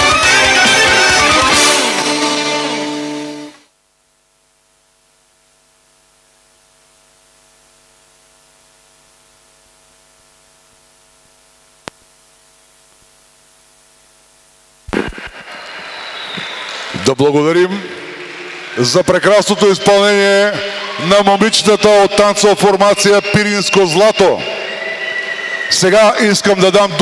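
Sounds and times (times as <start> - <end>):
dance music: 0.0 - 3.6
faint electrical hum: 2.9 - 19.0.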